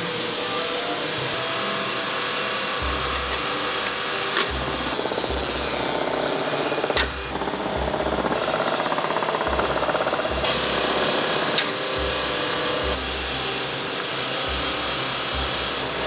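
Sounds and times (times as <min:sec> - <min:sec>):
factory machinery humming: 0:00.0 - 0:16.0
fast pulsing rattle: 0:04.5 - 0:12.1.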